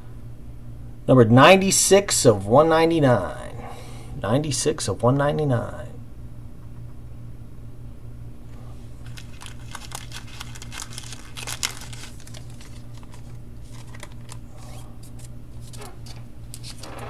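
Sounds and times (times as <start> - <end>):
steady low hum: 0.0 - 17.0
trading cards rustling: 8.8 - 16.9.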